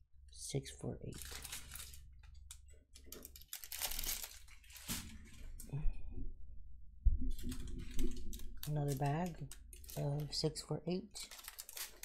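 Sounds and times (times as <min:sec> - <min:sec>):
plastic bags crinkling: 0:01.1 - 0:05.6, 0:07.4 - 0:12.0.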